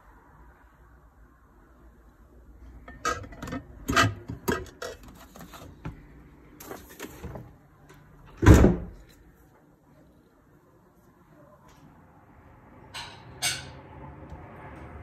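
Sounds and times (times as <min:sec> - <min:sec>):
containers scraping: 0:02.6 - 0:06.0
fridge door thumping shut: 0:08.4 - 0:09.0.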